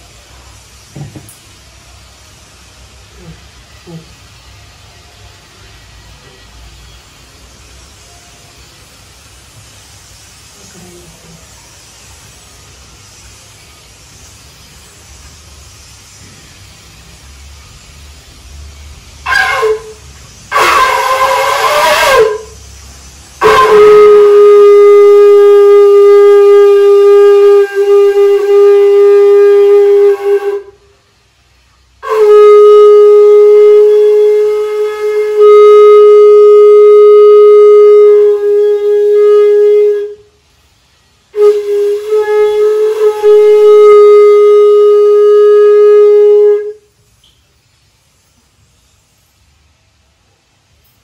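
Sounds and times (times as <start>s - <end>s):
conch shell blasts: 19.2s - 22.7s, 23.4s - 30.8s, 32.0s - 40.4s, 41.3s - 46.9s.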